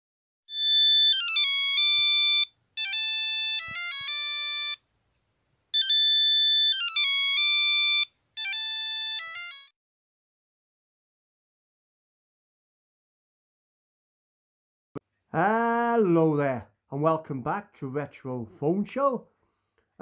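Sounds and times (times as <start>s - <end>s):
phone ringtone melody: 0.5s - 4.8s, 5.8s - 9.7s.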